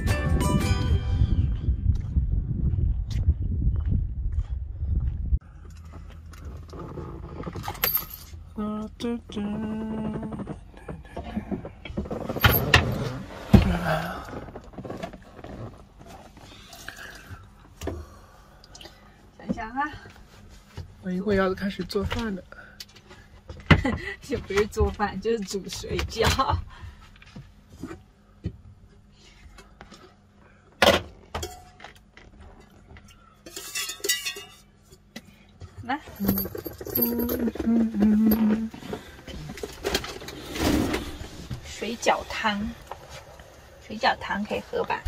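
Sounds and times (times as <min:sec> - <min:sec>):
metal pot and lid clattering: 0:33.5 - 0:34.6
handling noise: 0:36.1 - 0:41.6.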